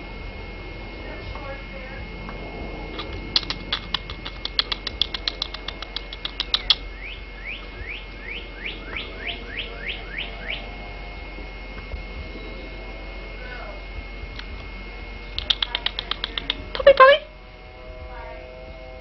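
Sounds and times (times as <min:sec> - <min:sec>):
bird chip notes: 0:02.8 - 0:17.4
bird downslurred whistles: 0:03.0 - 0:10.6.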